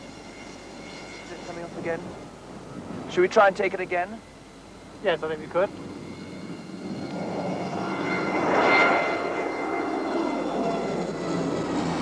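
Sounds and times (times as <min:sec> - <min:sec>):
high engine whine: 0:00.0 - 0:12.0
turboprop airliner flying overhead: 0:00.0 - 0:12.0.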